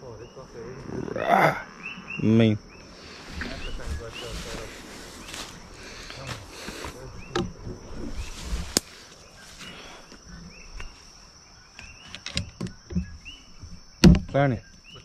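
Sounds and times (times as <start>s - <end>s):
insect chirps: 0.0s - 15.0s
insect drone: 0.0s - 15.0s
footsteps through leafy undergrowth: 3.0s - 7.2s
handling knocks: 12.2s - 14.7s.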